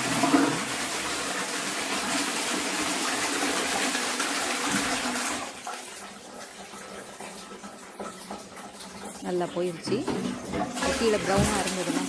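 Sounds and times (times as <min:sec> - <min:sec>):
toilet flushing: 0:00.0 - 0:12.0
water trickling: 0:03.6 - 0:12.0.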